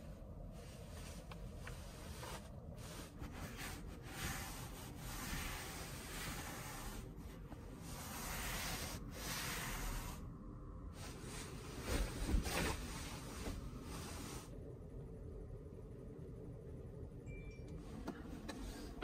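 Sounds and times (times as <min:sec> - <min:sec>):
hand rubbing bed sheet: 0:00.5 - 0:10.3, 0:11.0 - 0:14.6
body shifting on mattress: 0:11.1 - 0:14.3.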